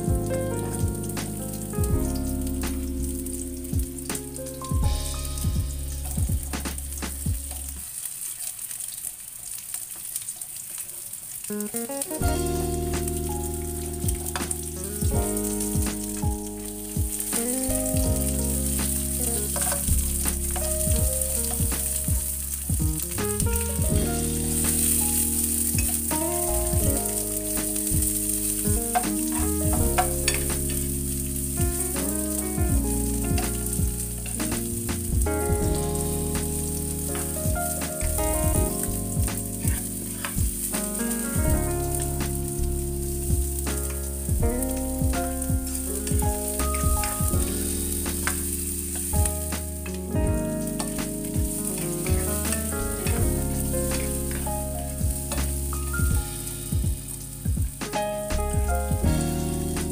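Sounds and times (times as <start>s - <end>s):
background music: 0.0s - 7.8s, 11.5s - 59.9s
onions sizzling in oil: 6.8s - 23.2s, 24.2s - 31.6s, 36.0s - 38.2s, 38.8s - 41.3s, 45.6s - 49.9s, 50.6s - 57.4s
spatula tapping and scraping pan: 18.8s - 20.8s, 27.7s - 30.9s.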